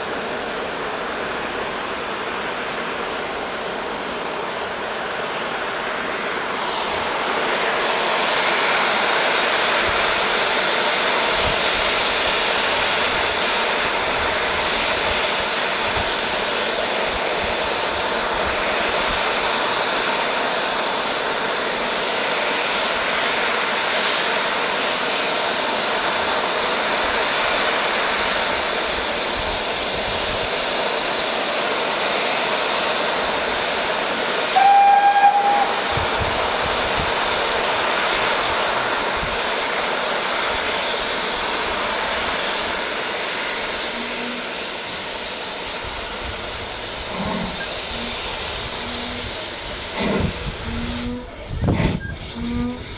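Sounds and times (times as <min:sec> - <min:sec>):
train rushing noise: 0:00.0 - 0:52.9
steam whistle toot: 0:34.4 - 0:36.5, 0:43.8 - 0:45.2, 0:47.1 - 0:52.9.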